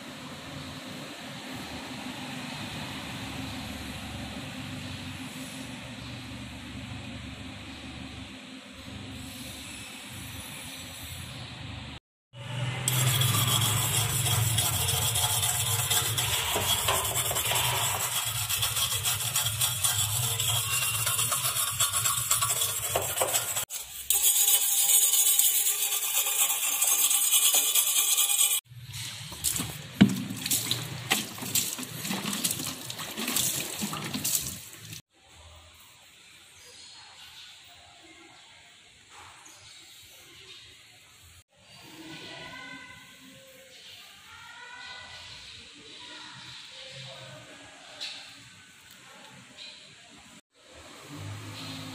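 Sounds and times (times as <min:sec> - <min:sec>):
hard brush scrubbing metal: 0:12.8 - 0:28.7, 0:29.4 - 0:35.0
water splashing from bucket: 0:29.3 - 0:35.0.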